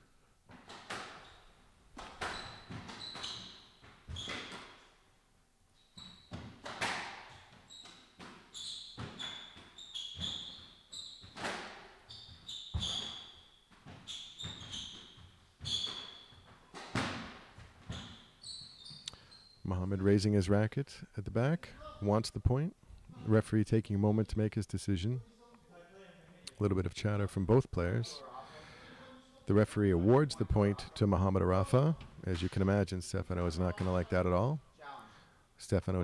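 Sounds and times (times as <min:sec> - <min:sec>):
shoes squeaking on wooden floor: 0:00.5 - 0:05.0, 0:05.8 - 0:19.8
squash ball cracking off rackets: 0:06.3 - 0:09.6.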